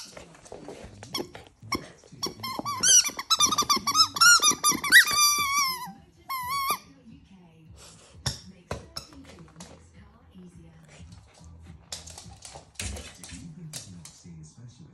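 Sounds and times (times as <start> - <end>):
dog mouthing a ball: 0.0 - 6.8
squeaky toy squeaking: 1.0 - 6.9.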